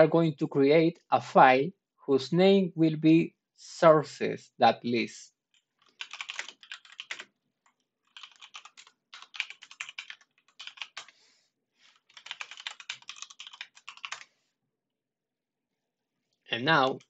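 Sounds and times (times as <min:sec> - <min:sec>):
computer keyboard typing: 0:05.6 - 0:11.2, 0:11.9 - 0:14.3.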